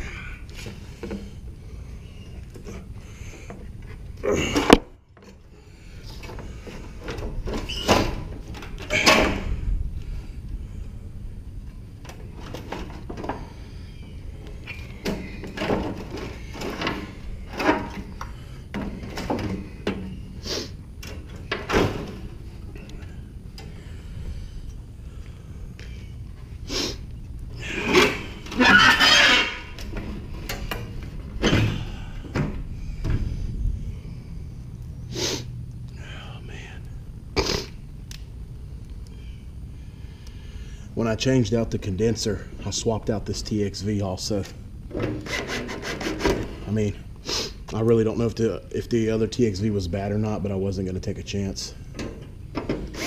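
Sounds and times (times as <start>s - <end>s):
loud metal scraping rustle: 27.6s - 31.6s, 44.9s - 46.7s.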